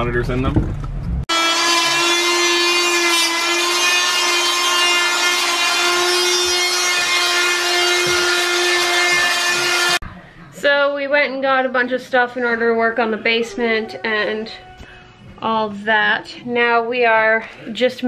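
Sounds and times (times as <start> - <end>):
power tool buzzing whine: 1.3 - 10.0.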